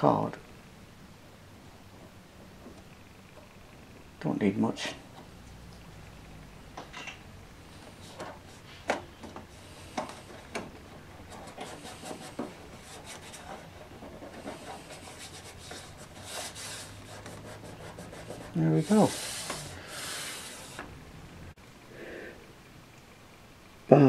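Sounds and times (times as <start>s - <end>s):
fingers rubbing card: 11.2s - 20.8s.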